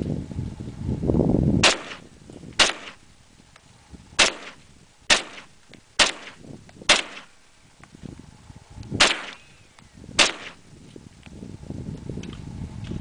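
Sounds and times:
low rumbling noise: 0.0s - 13.0s
rifle shots with echo: 1.6s - 3.0s, 4.2s - 7.4s, 9.0s - 9.5s, 10.2s - 10.6s.

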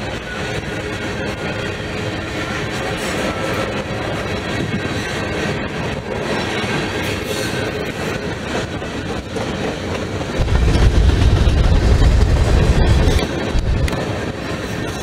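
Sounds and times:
train wheels rumbling on rails: 0.0s - 15.0s
deep low rumble: 10.4s - 14.0s.

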